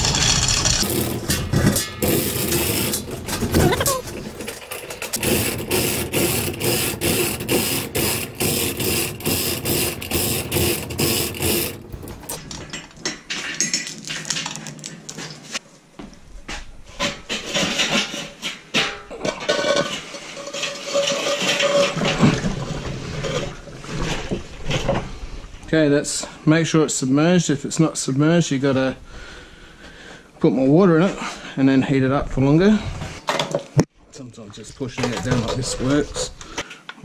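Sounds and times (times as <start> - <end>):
chain hoist clinking: 0.0 - 12.4
metal clanks: 0.0 - 15.6.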